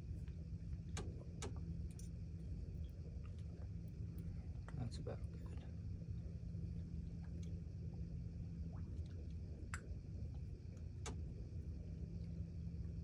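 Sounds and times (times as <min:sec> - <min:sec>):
steady low hum: 0:00.0 - 0:13.0
faint ticks of tools: 0:00.2 - 0:02.2.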